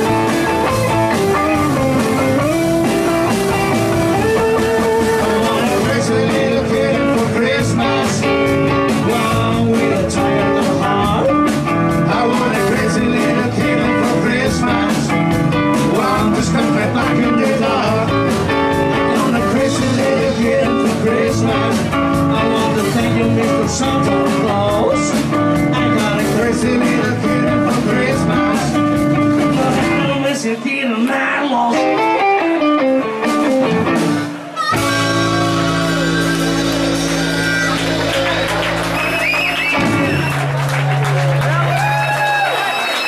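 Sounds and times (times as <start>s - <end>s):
drums and cymbals: 0.0s - 30.4s, 33.2s - 40.6s
blues-rock band playing: 0.0s - 30.5s, 31.5s - 43.0s.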